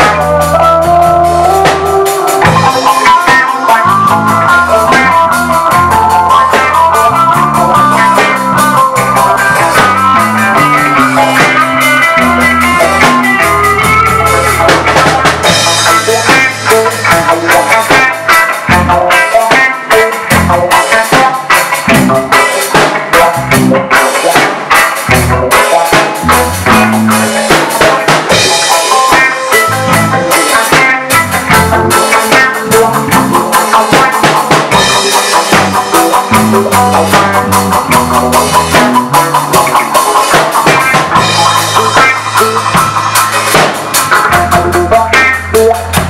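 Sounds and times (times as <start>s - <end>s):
drum kit: 0.0s - 46.0s
electric guitars: 0.0s - 46.0s
low bass line: 3.8s - 17.5s, 18.7s - 19.1s, 20.3s - 20.7s, 26.2s - 27.3s, 29.6s - 30.4s, 31.2s - 32.0s, 32.6s - 33.5s, 34.7s - 39.7s, 41.0s - 46.0s.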